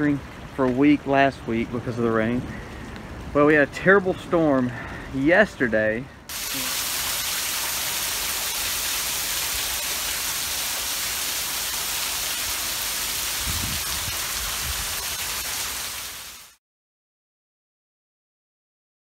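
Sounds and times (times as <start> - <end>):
heavy rain pouring: 6.3 - 16.6.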